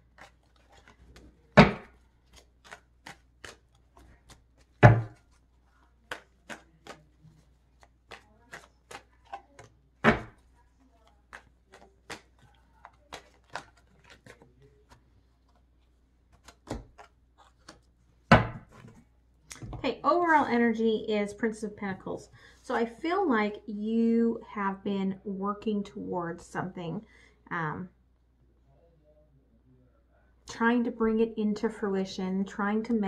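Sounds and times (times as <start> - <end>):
cards shuffling: 0.0 - 19.8.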